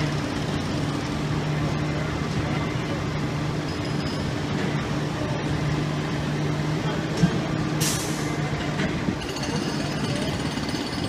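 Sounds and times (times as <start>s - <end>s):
heavy engine idling: 0.0s - 11.0s
street noise: 0.0s - 11.0s.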